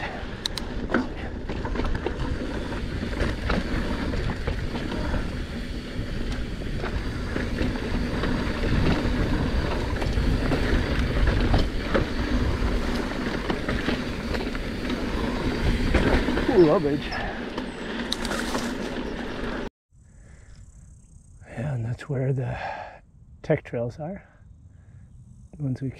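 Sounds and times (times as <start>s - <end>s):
bike clicks and rattles: 0.0s - 19.7s
tyres rumbling on dirt: 0.0s - 19.7s.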